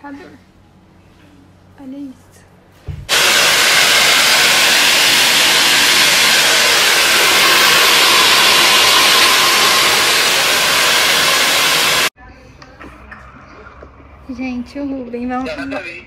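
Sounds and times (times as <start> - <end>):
hair dryer running: 3.1 - 12.2.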